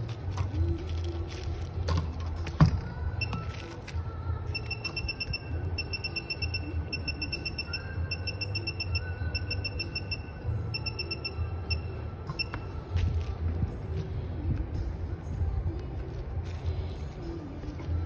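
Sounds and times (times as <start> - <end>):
rapid short electronic beeps: 4.5 - 12.5.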